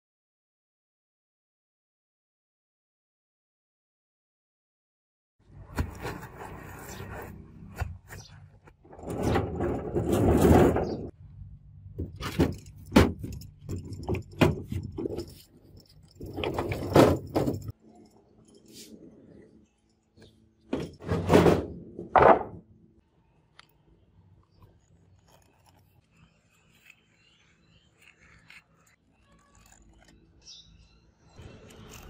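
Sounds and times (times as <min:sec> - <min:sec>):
anvil scraping and rattling: 0:12.2 - 0:19.4.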